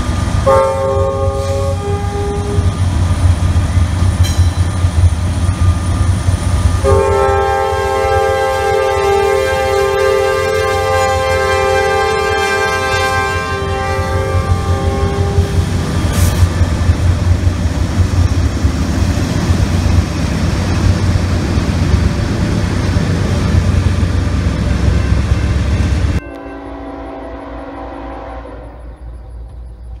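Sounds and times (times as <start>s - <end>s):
diesel train passing: 0.0s - 30.0s
train horn: 0.4s - 2.9s, 6.8s - 16.4s, 24.8s - 29.5s.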